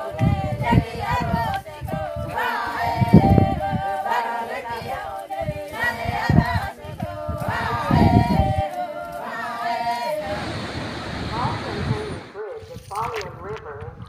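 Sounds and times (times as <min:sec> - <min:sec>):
voices singing in harmony: 0:00.0 - 0:12.4
low rumbling bursts: 0:10.2 - 0:12.6.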